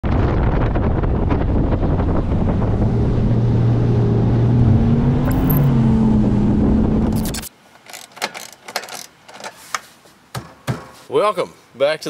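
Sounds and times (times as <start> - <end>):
wind buffeting microphone: 0.0 - 5.1
outboard motor drone: 1.4 - 7.2.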